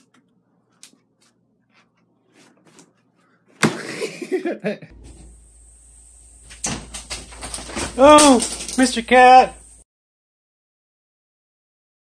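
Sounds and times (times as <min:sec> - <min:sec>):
puppy falling into plastic basket: 0:06.5 - 0:09.3.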